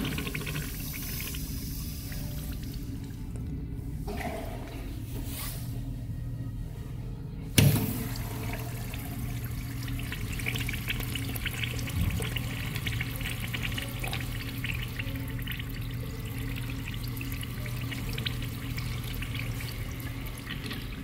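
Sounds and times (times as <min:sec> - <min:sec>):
urinal flush water rushing: 0:00.0 - 0:03.2, 0:07.6 - 0:21.0
water splashing in bowl: 0:07.7 - 0:21.0.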